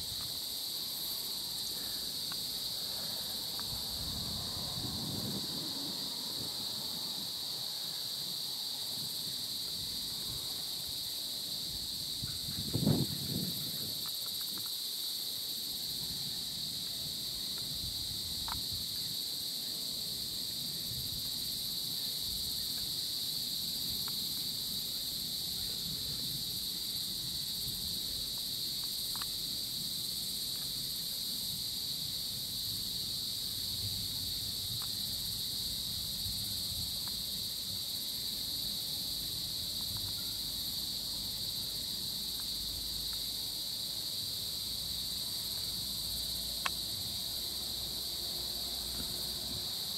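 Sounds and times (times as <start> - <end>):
faint ticks: 1.8 - 2.5, 14.0 - 14.8, 18.4 - 19.1, 24.0 - 24.5, 28.3 - 29.4, 39.8 - 40.3.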